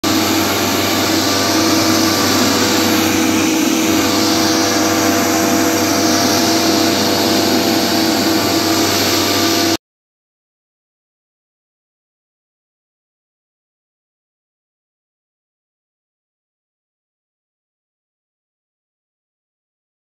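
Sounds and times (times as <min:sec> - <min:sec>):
air rushing from blower fan: 0:00.0 - 0:09.8
mist blower engine running: 0:00.0 - 0:09.8.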